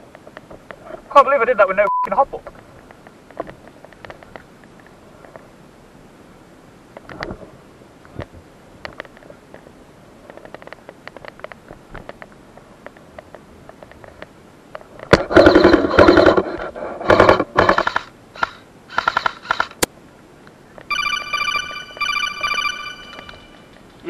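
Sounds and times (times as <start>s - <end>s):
voice over two-way radio: 1.1s - 2.5s
electronic beeps: 1.8s - 2.1s, 20.9s - 23.7s
faint ticks and rustles: 2.4s - 5.6s, 6.9s - 17.2s, 22.0s - 24.0s.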